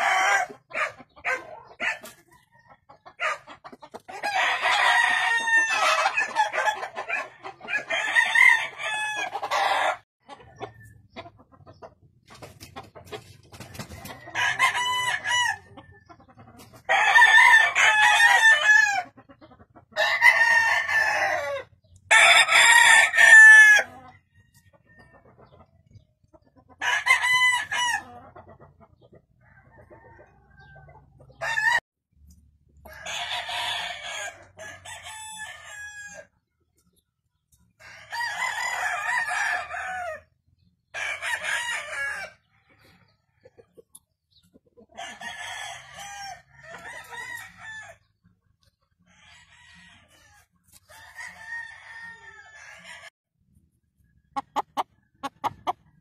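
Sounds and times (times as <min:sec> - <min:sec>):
roosters crowing: 0:00.0 - 0:10.0, 0:13.6 - 0:16.0, 0:16.8 - 0:19.2, 0:19.9 - 0:25.1, 0:26.7 - 0:28.4, 0:29.4 - 0:31.8, 0:32.8 - 0:36.4, 0:37.8 - 0:43.5, 0:44.9 - 0:48.2, 0:49.0 - 0:53.1.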